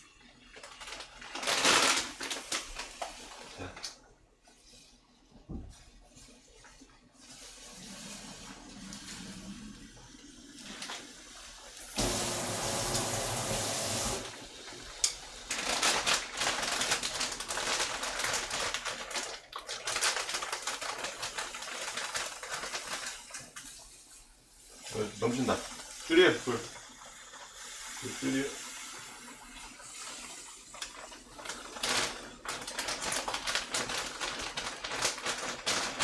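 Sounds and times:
tap water running into sink: 0:06.6 - 0:16.2, 0:22.8 - 0:34.6
water splashing and clattering: 0:14.2 - 0:36.0.

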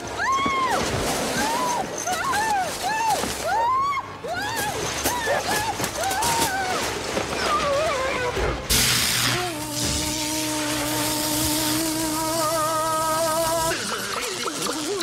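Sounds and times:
branches rustling: 0:00.0 - 0:08.7.

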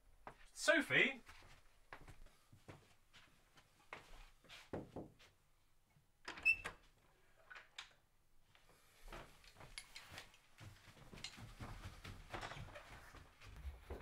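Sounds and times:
footsteps: 0:01.2 - 0:05.4, 0:08.5 - 0:14.0
door opening: 0:06.3 - 0:06.9.

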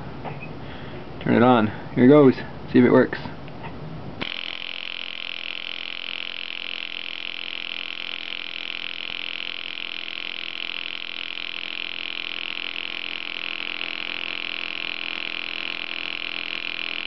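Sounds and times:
high voltage arcing hiss: 0:04.2 - 0:17.0
transformer buzzing: 0:04.2 - 0:17.0.

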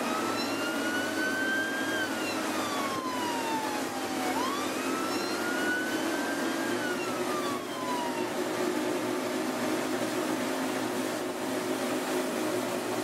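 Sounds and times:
siren wailing: 0:00.0 - 0:08.6
boat engines droning: 0:00.0 - 0:13.0
rushing water: 0:00.0 - 0:13.0.

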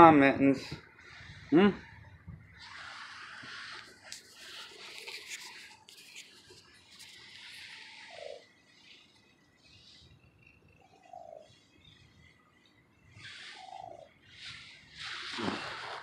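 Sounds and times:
hissy rustling: 0:14.2 - 0:16.0.

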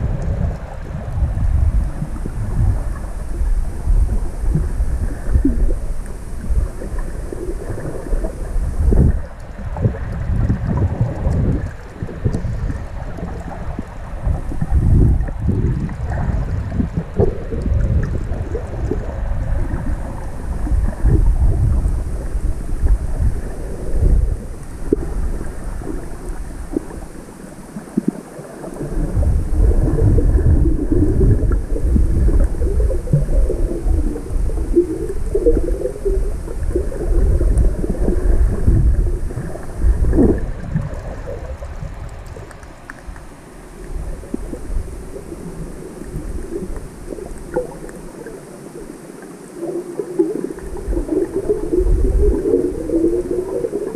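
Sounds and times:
underwater rumble and swishing water: 0:00.0 - 0:53.9
low thumps of water surge: 0:27.8 - 0:43.2.

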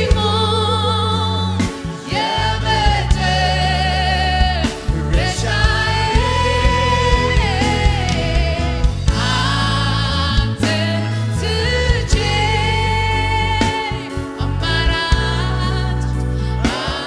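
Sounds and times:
keyboard band with steady beat: 0:00.0 - 0:17.0
woman singing with vibrato: 0:00.0 - 0:17.0
backing singers: 0:01.9 - 0:17.0.

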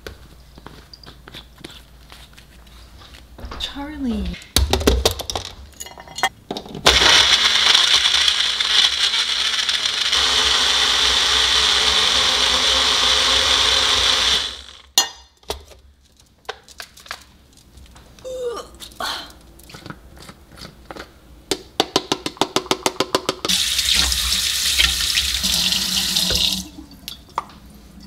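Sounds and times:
blender blending ice: 0:06.9 - 0:14.9.

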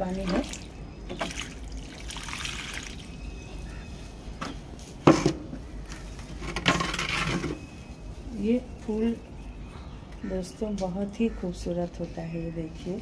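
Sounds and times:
water splashing onto soil: 0:00.2 - 0:03.2.

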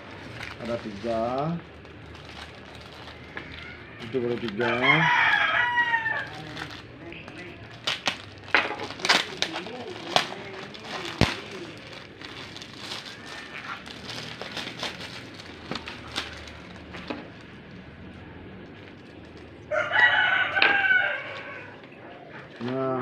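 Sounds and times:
plastic bags crinkling: 0:00.0 - 0:19.8
rooster crowing: 0:03.2 - 0:06.7, 0:13.1 - 0:13.8, 0:19.7 - 0:21.9.

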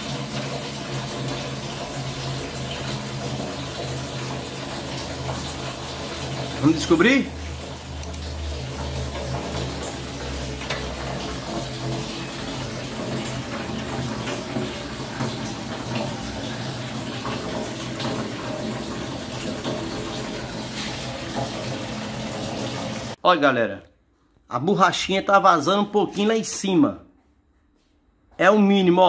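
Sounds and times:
water running: 0:00.0 - 0:23.2.

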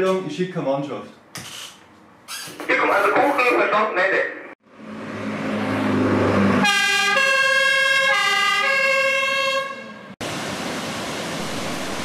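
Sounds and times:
two-tone siren: 0:06.6 - 0:10.2.

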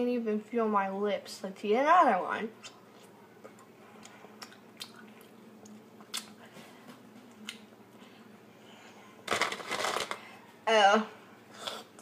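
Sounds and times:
person chewing: 0:02.6 - 0:06.4, 0:07.3 - 0:08.0, 0:11.5 - 0:12.0.

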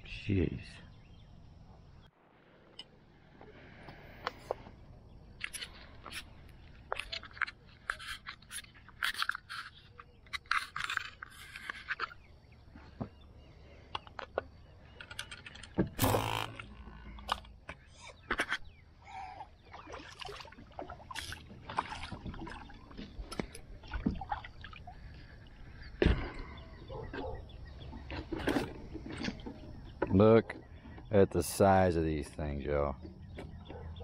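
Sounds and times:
splash: 0:19.7 - 0:22.8.

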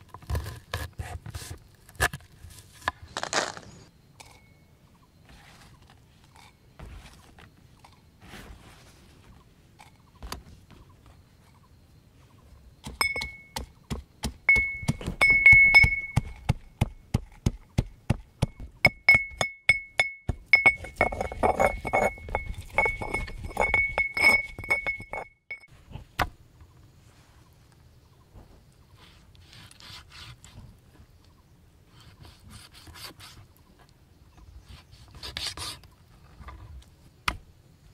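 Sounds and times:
metal pestle pounding in mortar: 0:12.9 - 0:25.3.

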